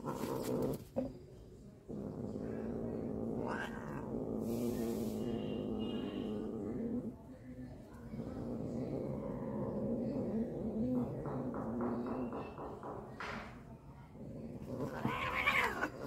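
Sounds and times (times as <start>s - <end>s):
cat growling yowl: 1.9s - 7.1s, 14.4s - 16.0s
cat hissing: 2.4s - 6.9s, 14.6s - 16.0s.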